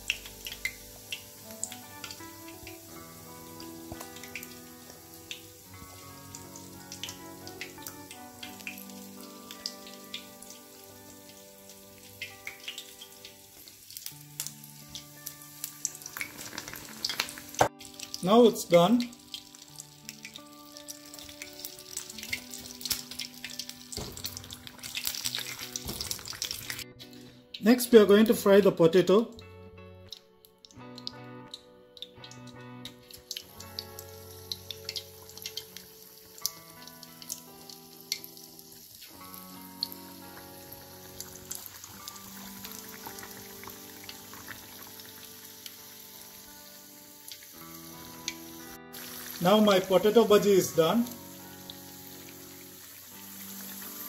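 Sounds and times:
deep-frying crackling sizzle: 0.0 - 29.2, 30.0 - 54.0
soft background music: 0.0 - 54.0.

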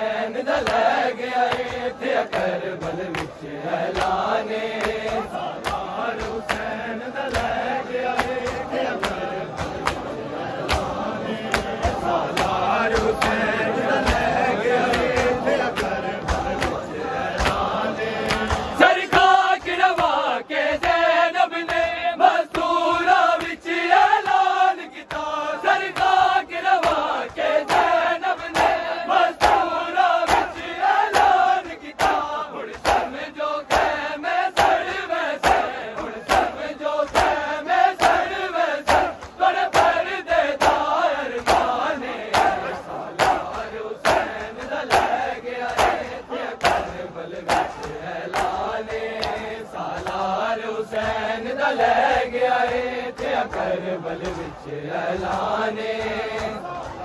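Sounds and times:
crowd of men chanting: 0.0 - 57.0
chest slaps: 41.4 - 50.2.

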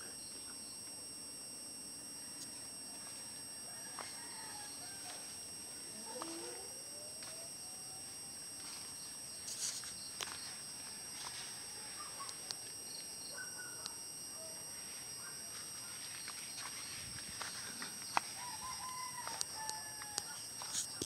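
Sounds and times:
high-pitched insect drone: 0.0 - 21.0
footsteps and clicks: 15.6 - 21.0.

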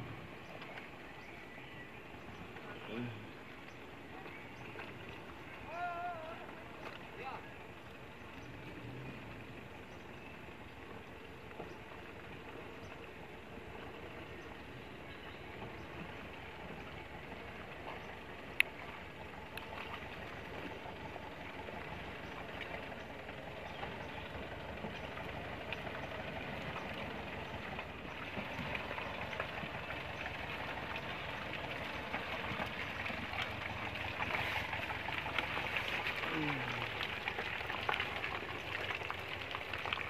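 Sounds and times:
pickup engine in low gear: 7.6 - 39.9
tyres in mud: 15.2 - 40.0.

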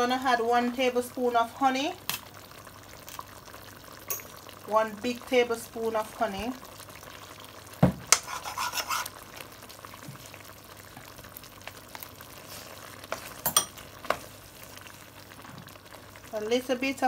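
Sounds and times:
pot sizzling quietly: 0.0 - 17.0
stirring food in pot: 8.0 - 10.5, 12.4 - 15.0.

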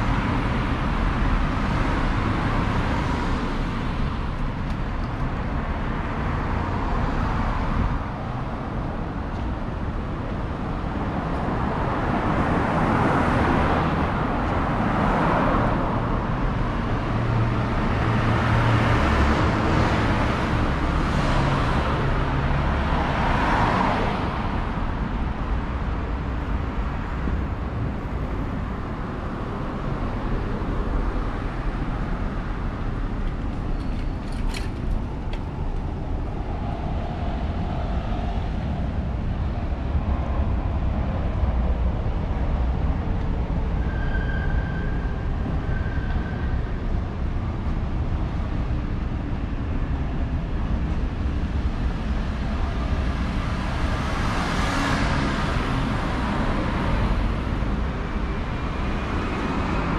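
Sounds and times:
passing cars: 0.0 - 59.9.

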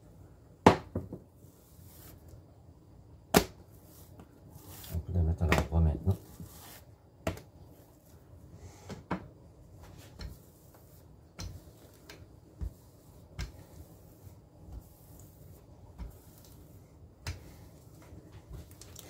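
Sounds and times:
rolling pin knocking on countertop: 0.6 - 1.2.

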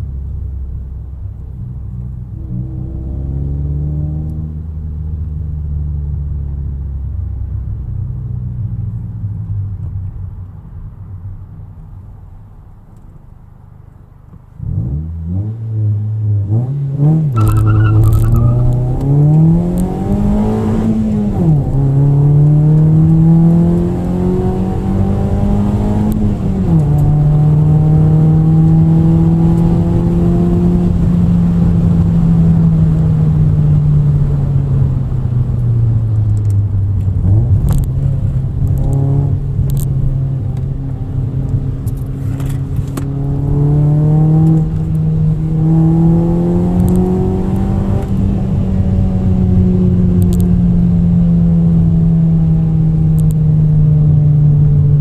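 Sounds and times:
car engine revving through gears: 2.3 - 4.7, 14.6 - 33.1, 36.2 - 54.3.

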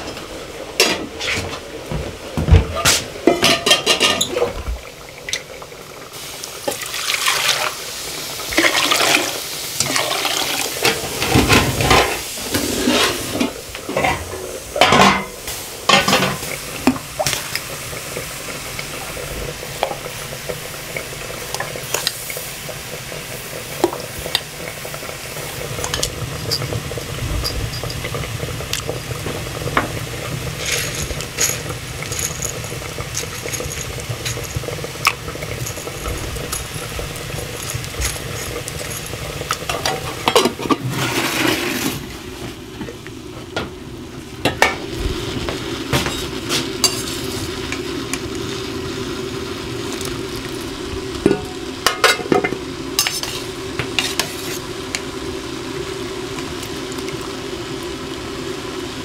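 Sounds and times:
cooking pots clanking and scraping: 0.0 - 22.5, 23.2 - 55.1
water splashing into a pot: 2.4 - 43.1.

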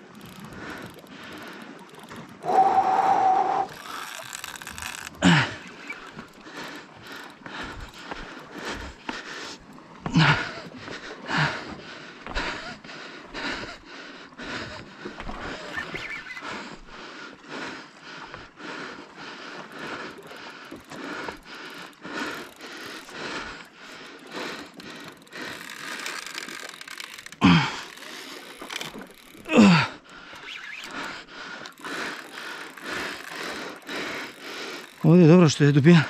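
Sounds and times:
fishing reel cranking: 0.0 - 7.9, 20.2 - 36.0.

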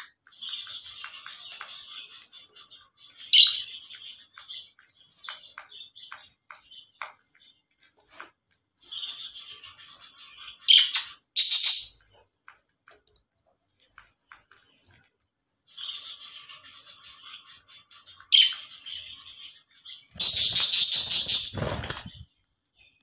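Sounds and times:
budgerigars chirping and warbling: 0.0 - 7.6, 8.8 - 12.2, 15.6 - 22.3.

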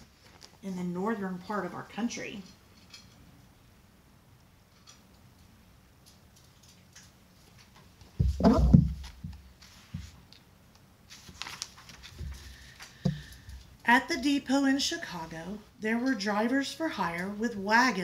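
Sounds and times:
book bumping and rustling: 8.2 - 10.2.

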